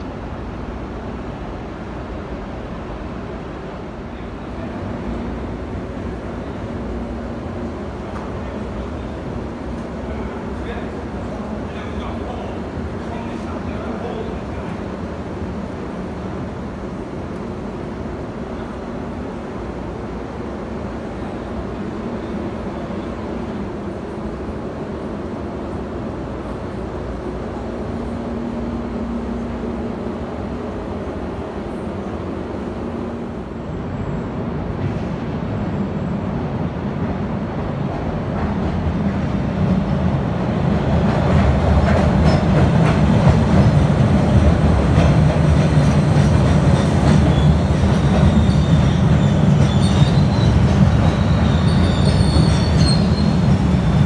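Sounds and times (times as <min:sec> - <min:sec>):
subway train rumbling: 0:00.0 - 0:54.0
faint wheel squeal: 0:48.3 - 0:54.0.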